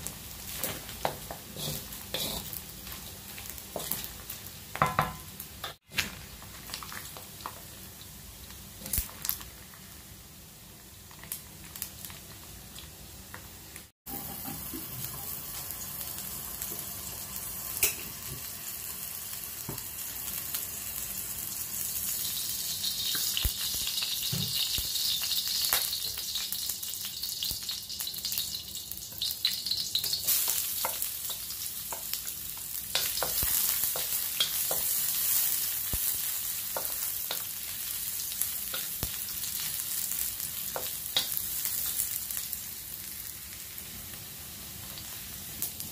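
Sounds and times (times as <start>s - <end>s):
oil and ginger sizzling in wok: 0.0s - 45.9s
wooden spatula scraping: 0.6s - 2.6s.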